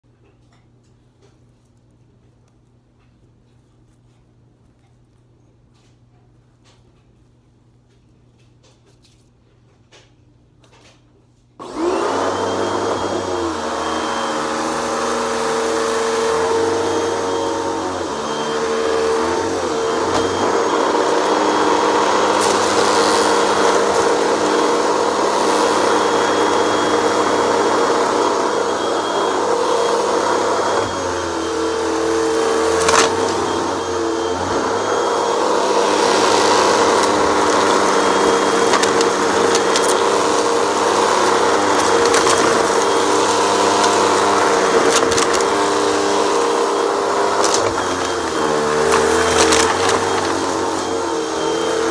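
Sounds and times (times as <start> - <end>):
vacuum cleaner humming on carpet: 11.6 - 51.9.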